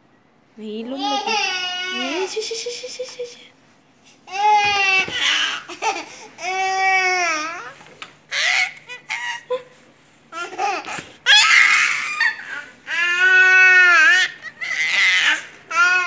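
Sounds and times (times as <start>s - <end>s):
baby crying: 1.1s - 2.4s, 4.3s - 9.7s, 10.4s - 16.0s
baby babbling: 1.1s - 3.2s
baby squealing: 8.3s - 9.5s, 11.2s - 16.0s.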